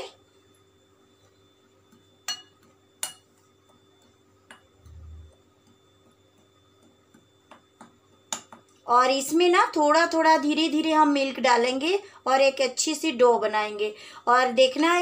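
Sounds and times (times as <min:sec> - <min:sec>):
glass bowl clinks: 0:02.2 - 0:03.3.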